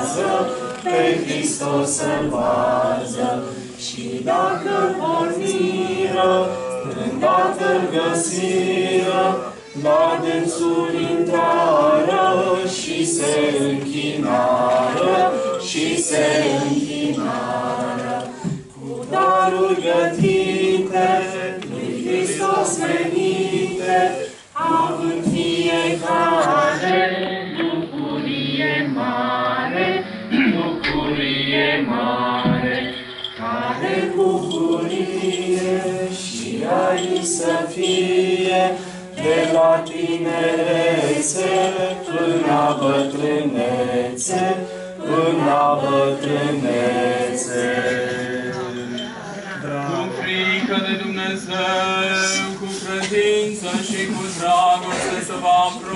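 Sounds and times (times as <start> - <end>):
choir chanting unaccompanied: 0.0 - 55.9
singers breathing: 38.8 - 39.2.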